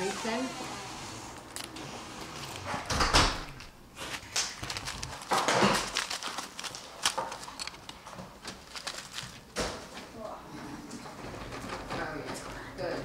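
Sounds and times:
newspaper rustling and crinkling: 0:03.9 - 0:09.6.

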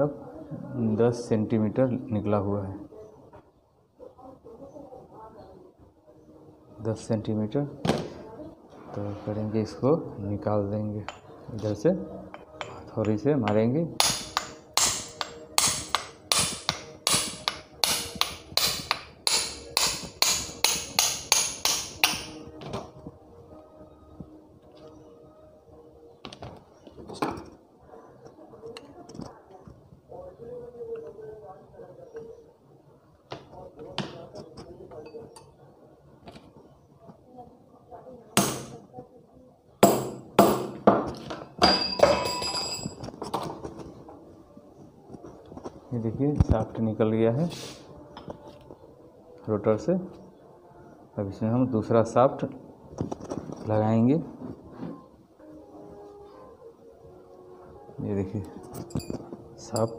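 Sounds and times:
hammer striking metal: 0:12.3 - 0:22.4, 0:39.8 - 0:40.8
metal taps ringing: 0:12.3 - 0:22.4, 0:41.6 - 0:43.0, 0:58.8 - 0:59.9.

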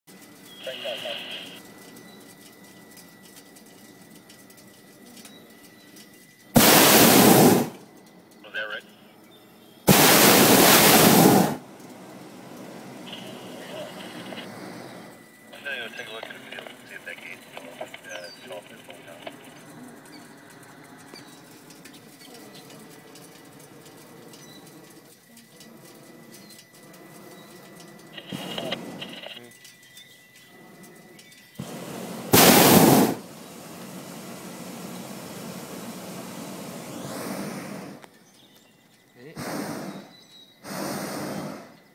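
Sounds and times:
steady low hiss: 0:00.1 - 0:41.9
propane burner blast: 0:06.4 - 0:08.8, 0:09.7 - 0:38.4, 0:39.2 - 0:41.9
faint bird chirps: 0:08.3 - 0:09.9, 0:15.8 - 0:22.8, 0:28.3 - 0:31.6, 0:38.1 - 0:40.6.

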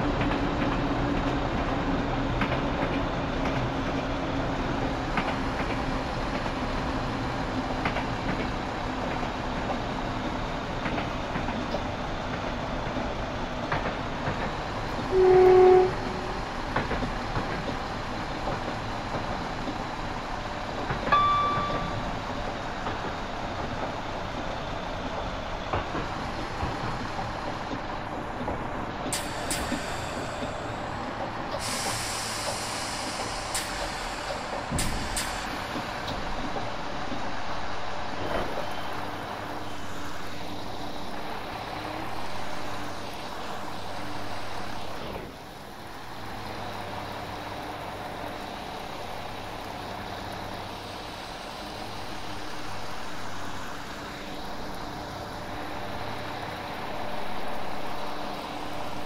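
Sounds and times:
diesel train engine running: 0:00.0 - 0:59.0
air brakes hissing: 0:29.1 - 0:36.0.

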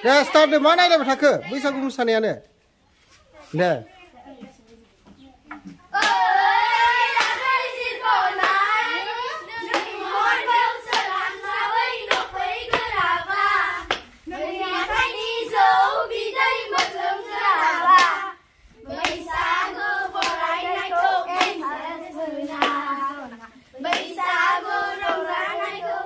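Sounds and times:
children singing: 0:05.9 - 0:26.0
sharp clapping: 0:06.0 - 0:06.3, 0:07.1 - 0:07.6, 0:08.4 - 0:08.7, 0:09.6 - 0:10.0, 0:10.9 - 0:11.2, 0:12.1 - 0:12.9, 0:13.9 - 0:14.1, 0:16.7 - 0:17.0, 0:17.9 - 0:18.3, 0:19.0 - 0:19.3, 0:20.2 - 0:20.5, 0:21.4 - 0:21.6, 0:22.6 - 0:22.8.

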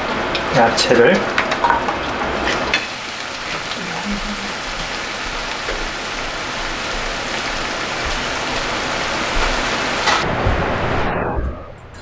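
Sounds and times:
vegetables sizzling in a frying pan: 0:02.4 - 0:10.2.

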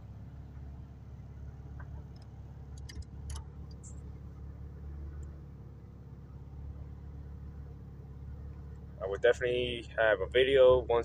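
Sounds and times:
car engine and road hum: 0:00.0 - 0:11.0
light clicks: 0:01.8 - 0:04.1.

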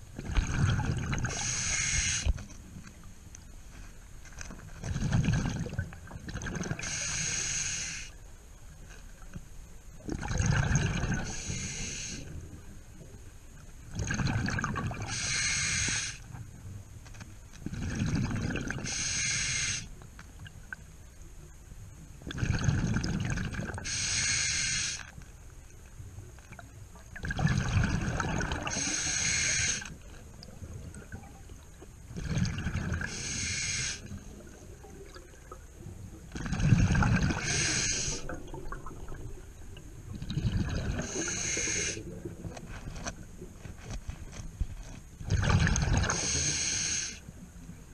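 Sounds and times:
exhaled bubbles rumbling: 0:00.0 - 0:01.6, 0:04.7 - 0:07.0, 0:10.0 - 0:11.6, 0:13.8 - 0:15.2, 0:17.6 - 0:18.9, 0:22.2 - 0:23.9, 0:26.5 - 0:29.3, 0:30.0 - 0:33.4, 0:34.0 - 0:43.9, 0:45.2 - 0:46.4
regulator inhale hiss: 0:01.3 - 0:02.4, 0:06.8 - 0:08.2, 0:11.2 - 0:12.4, 0:15.1 - 0:16.4, 0:18.8 - 0:19.9, 0:23.8 - 0:25.2, 0:28.7 - 0:30.0, 0:33.1 - 0:34.2, 0:37.4 - 0:38.3, 0:41.0 - 0:42.2, 0:46.0 - 0:47.3.

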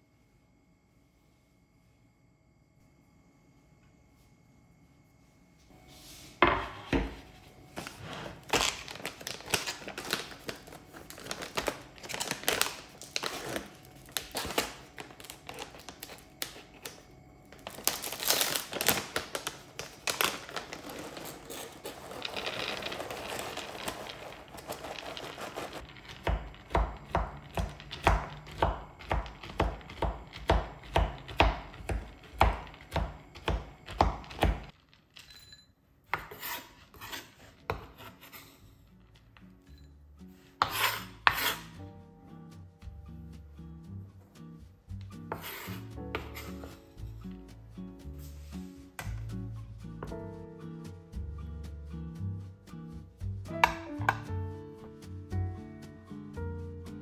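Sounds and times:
items handled and set down: 0:06.3 - 0:36.3
chopping on wooden cutting board: 0:26.2 - 0:34.6.

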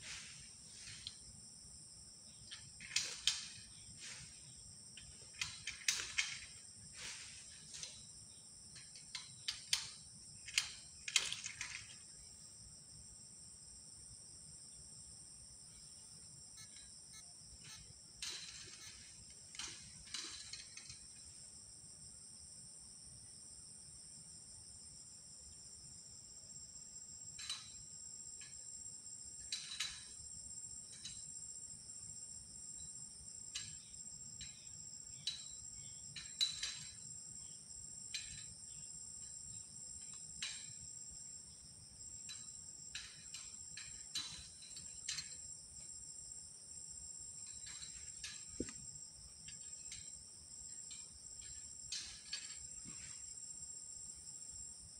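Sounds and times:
insects trilling: 0:00.0 - 0:54.9
clicks or rustles: 0:02.5 - 0:08.1, 0:08.7 - 0:12.2.

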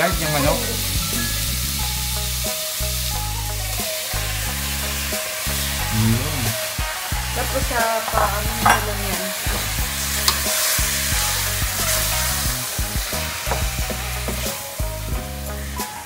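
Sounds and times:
chicken sizzling in a pot: 0:00.0 - 0:16.0
wooden spoon scraping pot: 0:08.0 - 0:10.4.

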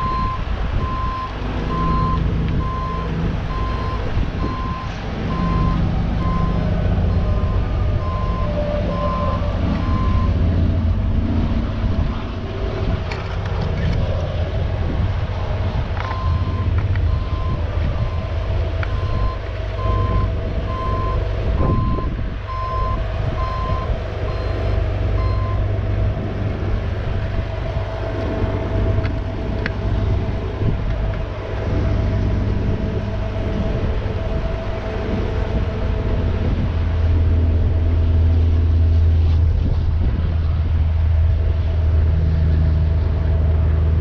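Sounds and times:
warning alarm beeping: 0:00.0 - 0:10.8, 0:16.0 - 0:25.8
diesel engine running: 0:00.0 - 0:44.0.

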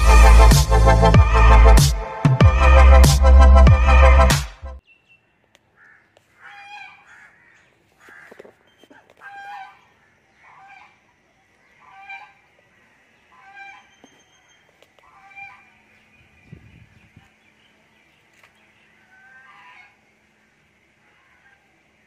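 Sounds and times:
waterfowl calling: 0:05.7 - 0:16.0, 0:18.8 - 0:22.0.

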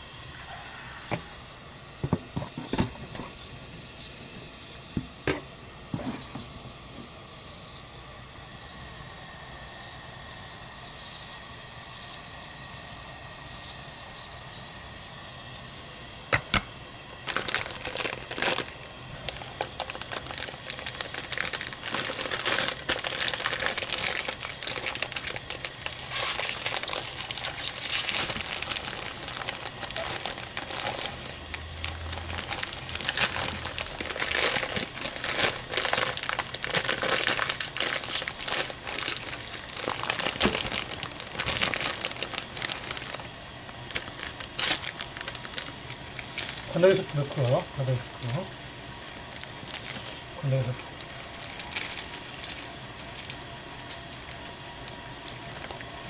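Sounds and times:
plastic packets crinkling: 0:17.2 - 0:55.9.

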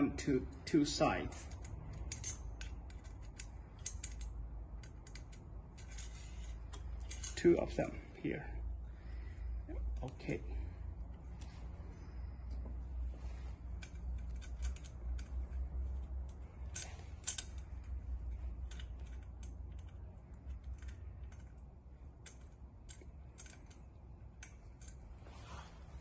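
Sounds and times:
low steady hum: 0:00.0 - 0:26.0
allen key clicking on bolts: 0:01.3 - 0:07.4, 0:13.7 - 0:25.1.

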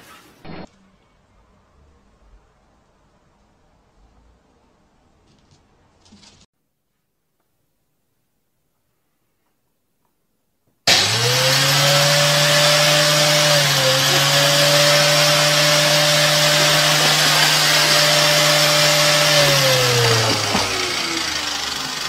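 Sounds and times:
electric motor humming and hissing: 0:10.9 - 0:22.0.

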